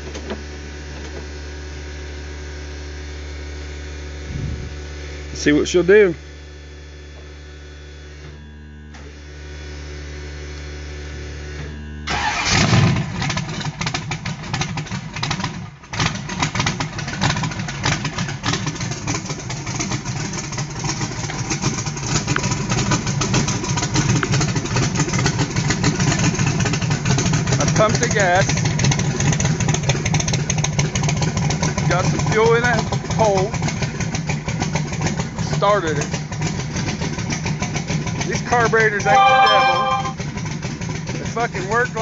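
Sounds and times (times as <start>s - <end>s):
engine starting and idling unevenly: 12.1s - 39.1s.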